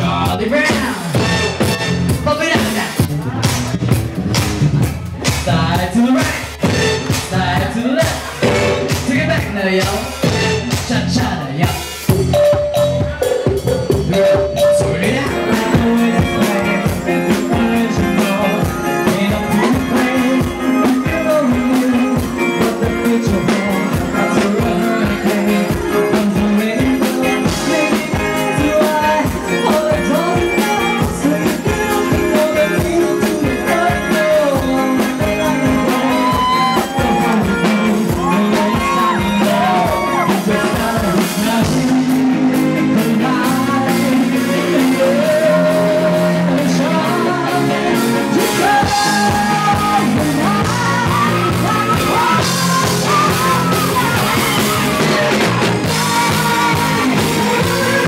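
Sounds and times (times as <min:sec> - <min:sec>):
live band playing: 0:00.0 - 0:58.0
steady drum beat: 0:00.0 - 0:58.0.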